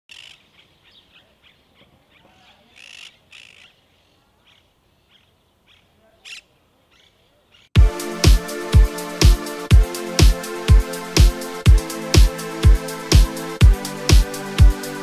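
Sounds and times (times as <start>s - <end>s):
harsh parakeet calls: 0.1s - 7.7s.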